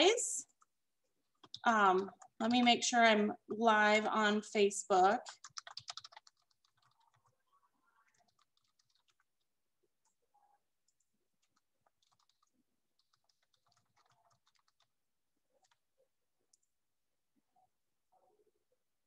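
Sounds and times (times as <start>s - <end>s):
computer keyboard and mouse clicking: 1.3s - 2.8s, 5.2s - 10.2s, 10.9s - 15.9s.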